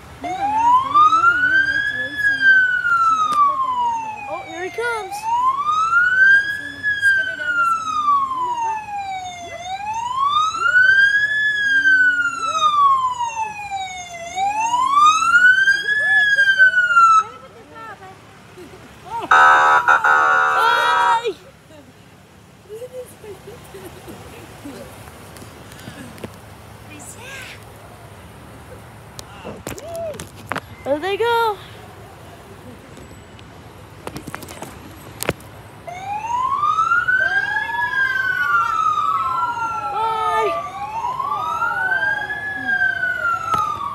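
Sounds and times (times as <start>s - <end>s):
fire truck siren wailing: 0.0s - 17.4s, 19.3s - 21.4s, 35.8s - 43.9s
second siren tone: 19.3s - 21.2s.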